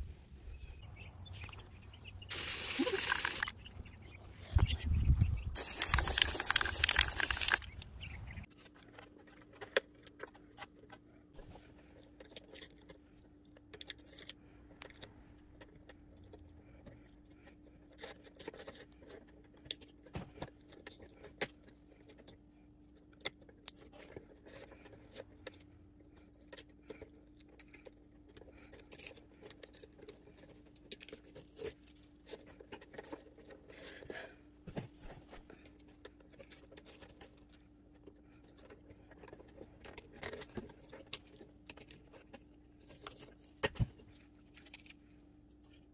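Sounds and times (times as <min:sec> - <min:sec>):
tape crinkling and clicks: 0:05.6 - 0:07.9, 0:35.6 - 0:45.9.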